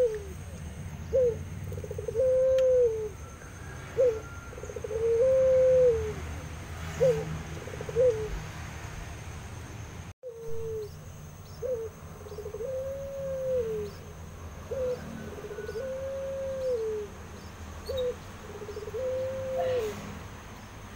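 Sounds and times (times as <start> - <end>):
dove cooing: 0.0 - 6.3, 6.9 - 8.4, 10.2 - 11.0, 11.6 - 17.2, 17.8 - 20.0.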